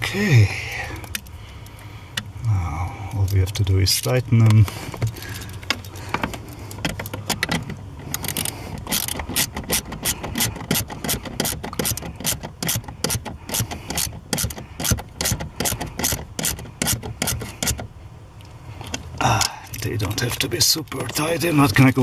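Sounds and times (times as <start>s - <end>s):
ratchet wrench clicking: 6.8s - 17.8s.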